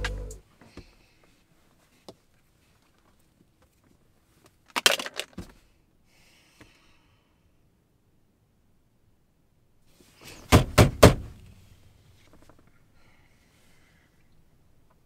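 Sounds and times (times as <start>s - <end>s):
clicks and rattles: 4.7s - 5.4s.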